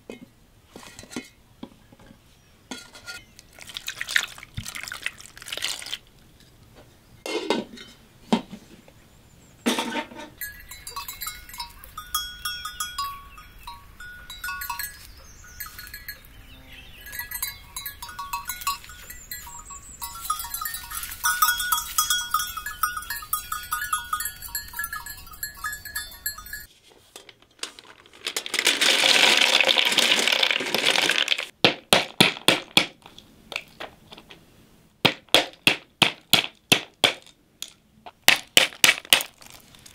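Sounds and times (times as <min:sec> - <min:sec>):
livestock bell clinking: 0:10.4 - 0:26.7.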